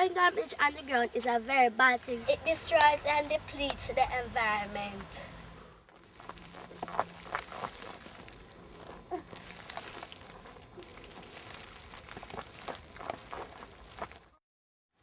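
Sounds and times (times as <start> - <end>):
snack wrappers crinkling: 5.9 - 14.4
footsteps on grass and gravel: 6.0 - 14.4.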